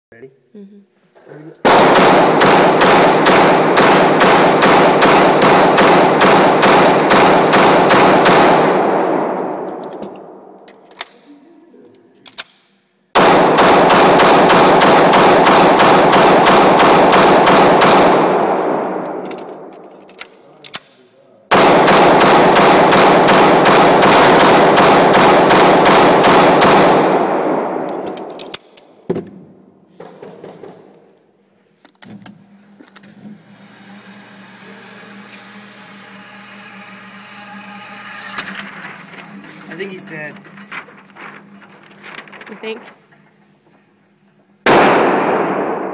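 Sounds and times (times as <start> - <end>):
rapid pistol shots with echo: 1.7 - 10.4, 13.2 - 19.8, 21.5 - 29.0, 44.7 - 45.9.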